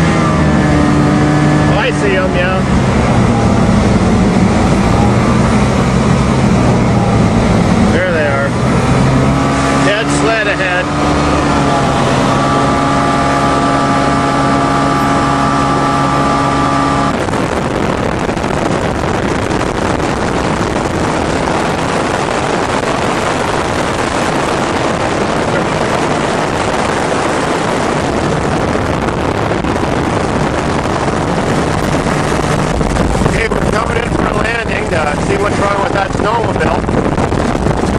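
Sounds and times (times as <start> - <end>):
airplane engine and propeller drone: 0.0 - 37.9
wind rushing: 0.0 - 37.9.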